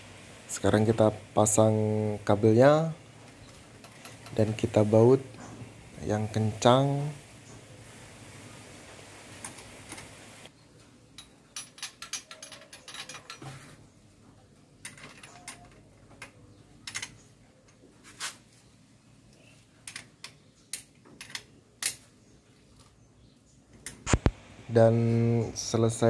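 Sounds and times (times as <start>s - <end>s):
hand tool clinking on metal: 11.2s - 13.6s, 14.8s - 17.2s.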